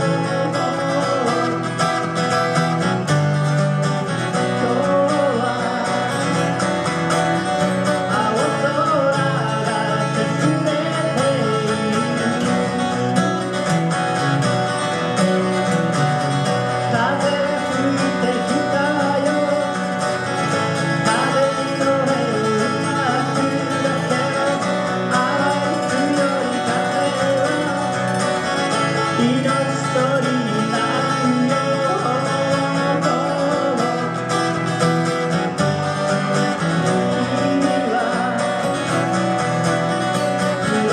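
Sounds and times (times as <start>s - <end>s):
person singing: 0.0s - 2.5s, 3.2s - 13.6s, 16.6s - 40.9s
acoustic guitar playing: 0.0s - 40.9s.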